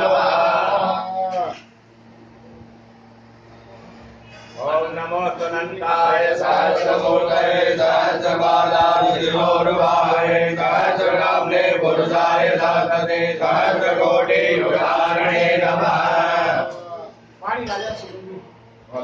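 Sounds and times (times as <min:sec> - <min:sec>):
mantras chanted: 0:00.0 - 0:01.6, 0:04.6 - 0:17.2.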